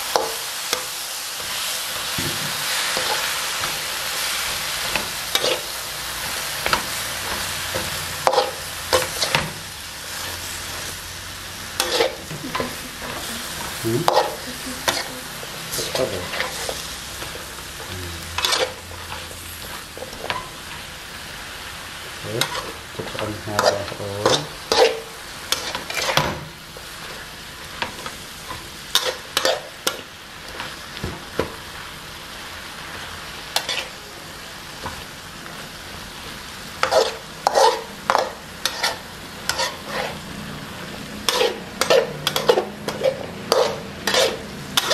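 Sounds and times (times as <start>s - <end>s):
stir-frying sizzle in a wok: 0.0s - 44.9s
metal spatula scraping a pan: 4.8s - 5.7s, 11.7s - 17.6s, 18.4s - 20.5s, 22.4s - 26.4s, 33.6s - 34.0s, 36.8s - 40.3s, 41.2s - 44.9s.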